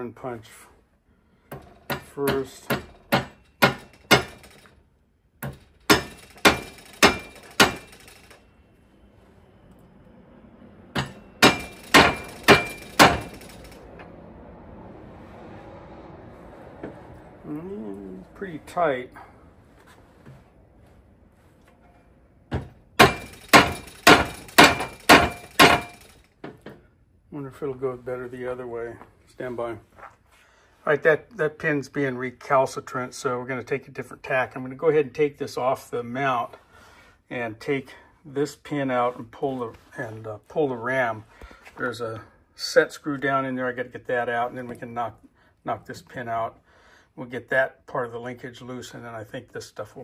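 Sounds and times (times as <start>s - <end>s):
hammer tapping metal punch: 1.5s - 4.6s, 5.4s - 8.4s, 11.0s - 13.8s, 22.5s - 26.8s.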